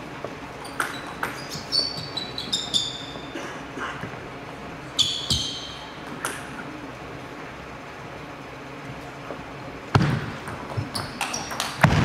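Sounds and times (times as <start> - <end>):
table tennis ball bouncing: 0.8 - 2.2, 10.0 - 12.0.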